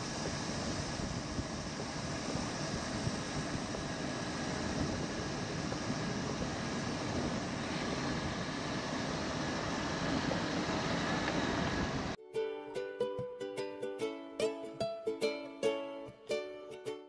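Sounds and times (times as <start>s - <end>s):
car moving on the road: 0.0s - 12.2s
plucked guitar music: 12.2s - 17.0s.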